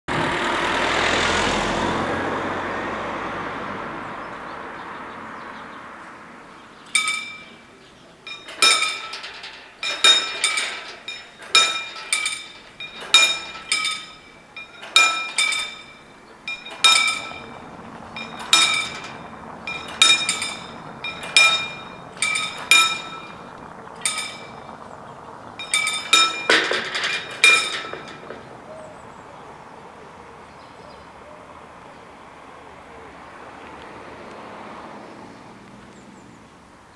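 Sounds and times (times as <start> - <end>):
car driving past: 0.1 - 7.7, 12.5 - 26.5, 27.2 - 36.9
level crossing warning bells: 6.1 - 31.6.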